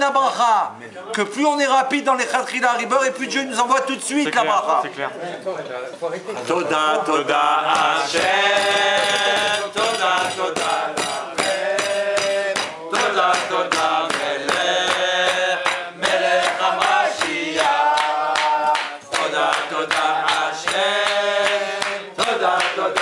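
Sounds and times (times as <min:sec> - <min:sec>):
men singing in unison: 0:06.8 - 0:23.0
rhythmic clapping or table-banging: 0:07.4 - 0:23.0.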